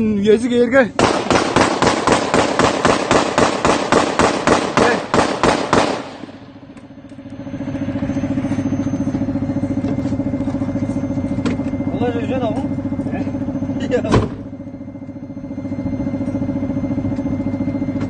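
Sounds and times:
vehicle engine droning: 0:00.0 - 0:18.0
rapid gunfire: 0:01.0 - 0:06.4.

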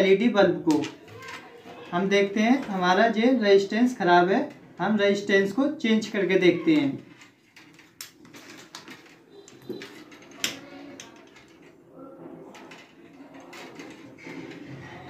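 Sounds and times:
sharp clicks and taps: 0:07.8 - 0:08.2
faint murmur: 0:09.2 - 0:15.0.

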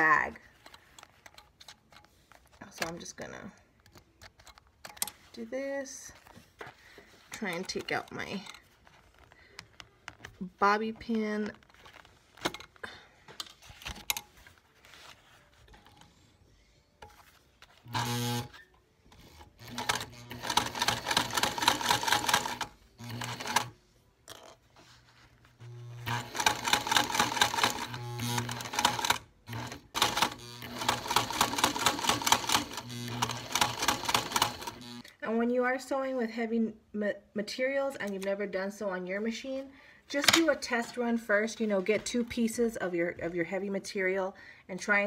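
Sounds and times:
sewing machine stitching: 0:17.9 - 0:18.6, 0:19.2 - 0:23.8, 0:25.6 - 0:35.0.

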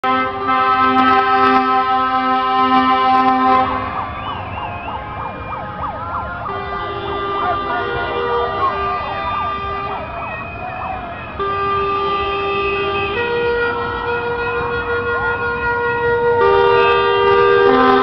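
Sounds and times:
loud horn chord: 0:00.0 - 0:04.0, 0:06.4 - 0:10.0, 0:11.4 - 0:18.0
shrill wavering whistles: 0:04.0 - 0:05.6, 0:08.9 - 0:11.1
people shouting: 0:06.8 - 0:11.3.

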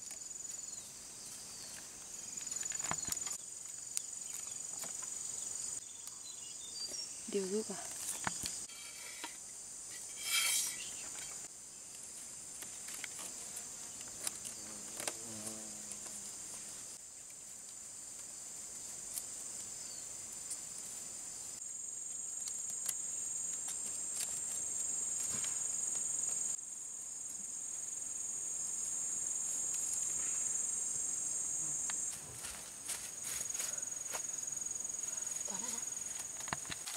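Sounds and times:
high-pitched insect chorus: 0:00.0 - 0:36.9
bamboo strips clicking and rustling: 0:01.7 - 0:05.2, 0:07.9 - 0:13.4, 0:14.0 - 0:15.2, 0:22.3 - 0:25.6, 0:36.0 - 0:36.9.

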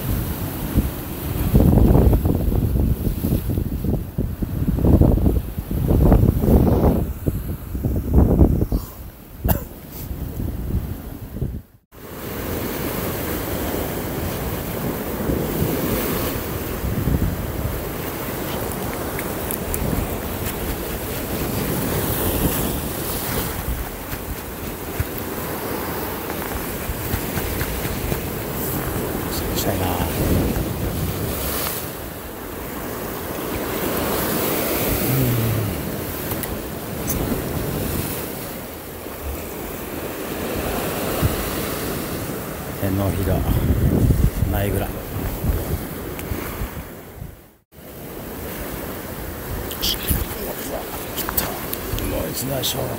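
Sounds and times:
wind buffeting microphone: 0:00.0 - 0:11.8, 0:13.0 - 0:32.2, 0:43.2 - 0:47.4
surf washing against rocks: 0:12.0 - 0:52.9.

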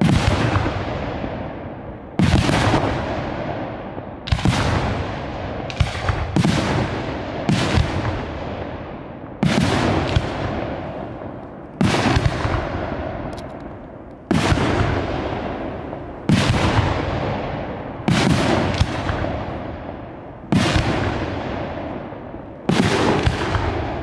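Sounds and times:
firework shells bursting: 0:10.0 - 0:16.9.

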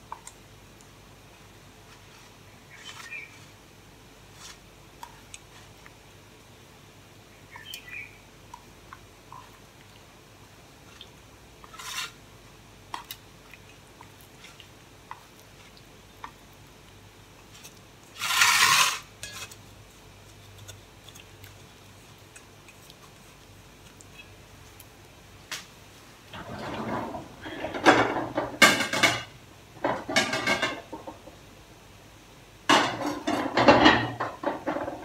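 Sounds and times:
spatula scraping steel pan: 0:11.6 - 0:12.2, 0:18.1 - 0:19.6.

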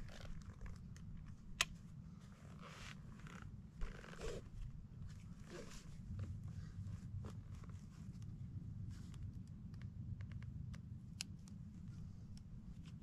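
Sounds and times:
nylon straps rustling: 0:00.0 - 0:09.3.

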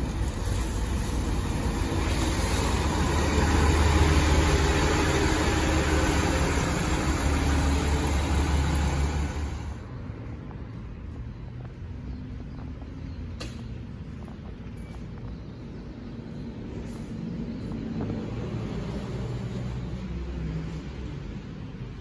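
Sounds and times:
bus engine passing: 0:00.0 - 0:10.0.

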